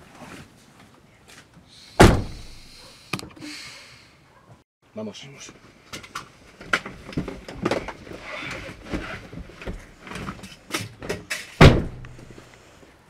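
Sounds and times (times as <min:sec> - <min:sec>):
car door slamming: 0:02.0 - 0:02.6, 0:11.6 - 0:12.2.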